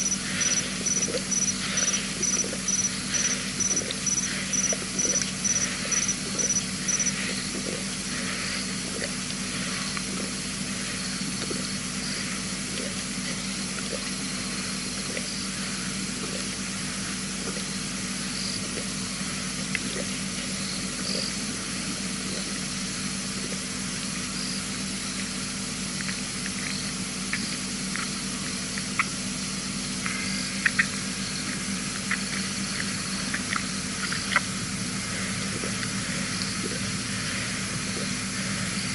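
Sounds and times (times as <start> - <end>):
high repeated chirp: 0.0 - 7.2
background hiss and hum: 0.0 - 38.9.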